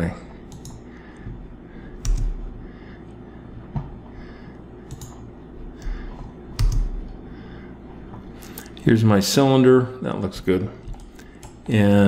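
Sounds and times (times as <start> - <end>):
faint room hum: 0.0 - 12.0
computer keyboard and mouse clicks: 0.5 - 0.8, 2.0 - 2.4, 4.8 - 5.2, 6.6 - 7.0, 10.8 - 11.6.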